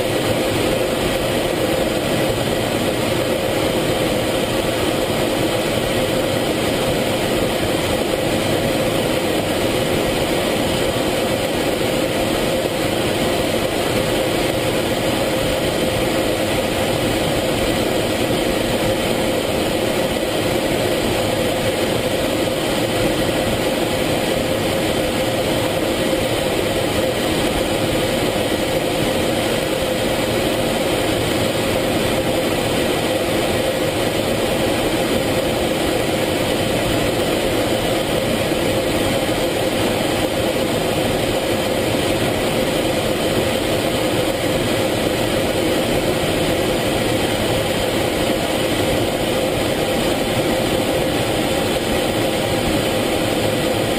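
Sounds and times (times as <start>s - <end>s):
jet engine and airflow drone: 0.0s - 53.9s.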